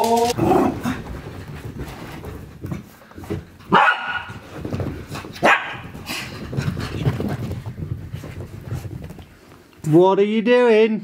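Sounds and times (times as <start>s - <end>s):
puppies playing: 0.1s - 9.7s
puppy barking sharply: 3.7s - 4.4s, 5.4s - 5.9s.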